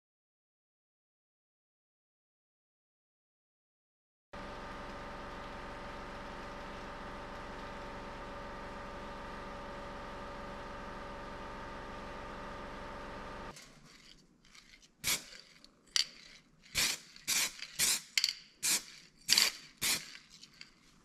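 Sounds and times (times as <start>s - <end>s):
steady hum: 4.4s - 13.5s
aerosol can spritzes: 15.0s - 15.5s, 16.7s - 20.3s.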